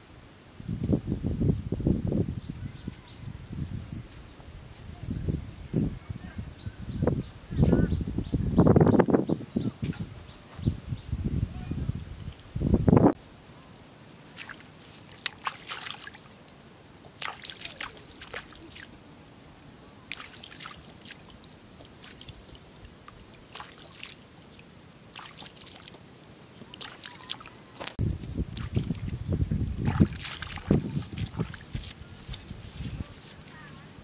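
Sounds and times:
hands splashing in wet mud: 0:14.3 - 0:16.3, 0:17.2 - 0:18.9, 0:20.1 - 0:22.6, 0:23.5 - 0:24.2, 0:25.1 - 0:26.0, 0:26.7 - 0:32.4.

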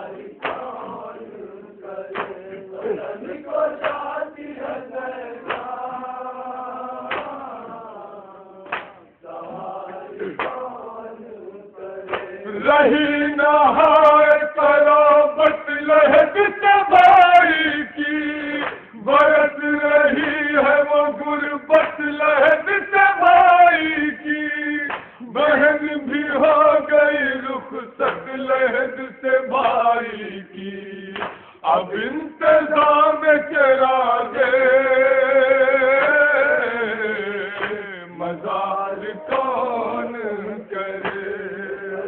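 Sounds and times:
men chanting a lament: 0:00.0 - 0:42.0.

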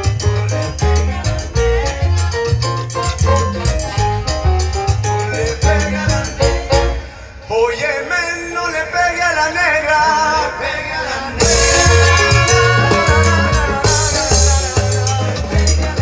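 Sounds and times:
salsa band playing: 0:00.0 - 0:07.4, 0:11.1 - 0:16.0.

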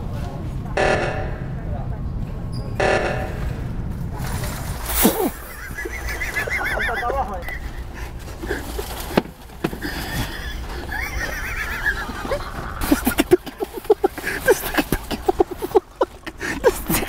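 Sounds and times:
person laughing high-pitched: 0:05.0 - 0:07.9, 0:09.8 - 0:17.0.

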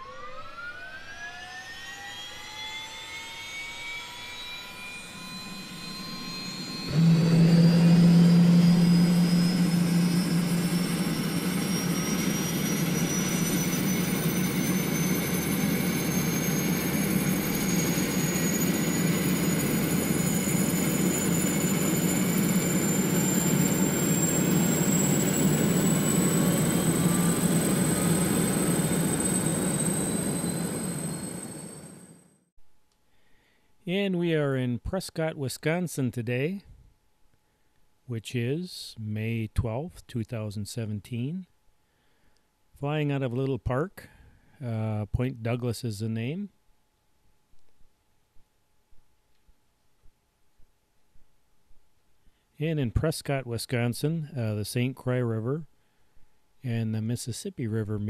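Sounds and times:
drone propellers buzzing: 0:04.1 - 0:32.2.

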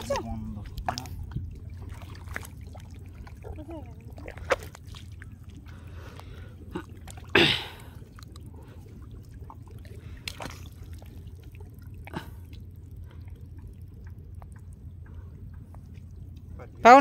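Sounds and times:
hands squelching in wet mud: 0:10.0 - 0:11.2.

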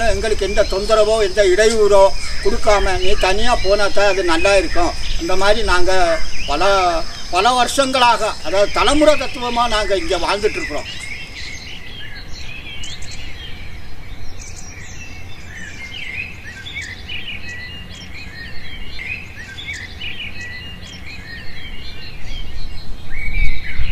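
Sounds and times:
steady low rumble: 0:00.0 - 0:16.5
birds chirping and whistling: 0:00.0 - 0:23.9.

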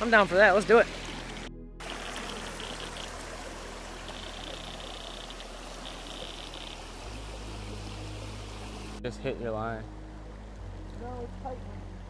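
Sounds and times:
outdoor background hiss: 0:00.0 - 0:12.0
low hum: 0:00.9 - 0:12.0.

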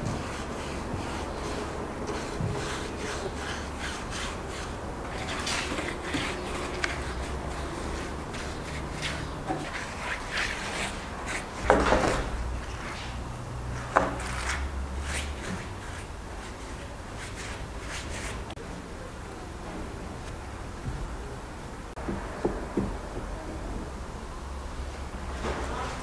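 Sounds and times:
paintbrush scrubbing concrete: 0:00.0 - 0:18.6.

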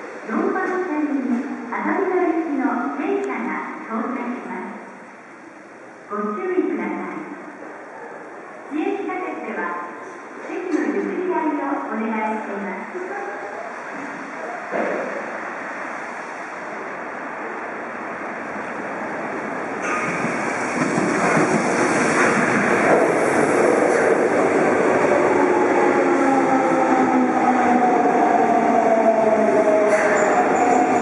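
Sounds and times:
train rolling noise: 0:12.3 - 0:31.0.

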